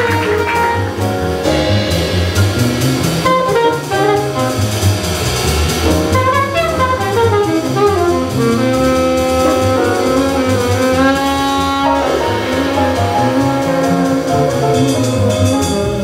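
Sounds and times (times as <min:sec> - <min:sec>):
alto saxophone playing quick notes: 0:00.0 - 0:01.1, 0:03.3 - 0:04.9, 0:06.0 - 0:15.2
drum kit with cymbals: 0:00.0 - 0:16.0
piano: 0:00.0 - 0:16.0
upright bass: 0:00.0 - 0:16.0.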